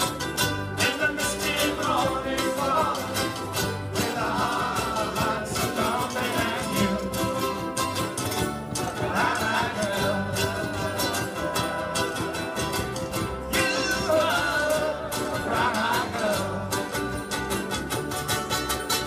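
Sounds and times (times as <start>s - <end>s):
ukuleles strumming: 0.0s - 19.0s
many voices singing: 0.8s - 7.6s, 8.8s - 18.0s.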